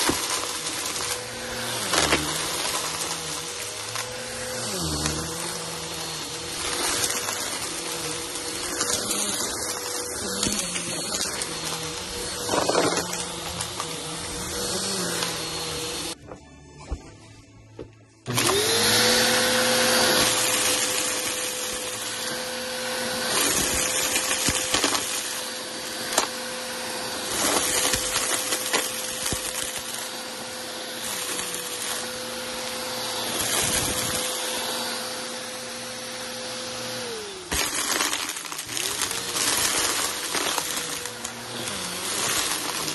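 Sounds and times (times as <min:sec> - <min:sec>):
debris crackling in vacuum: 0:00.0 - 0:16.2, 0:37.3 - 0:42.9
vacuum cleaner motor whine: 0:00.0 - 0:16.2, 0:18.2 - 0:42.9.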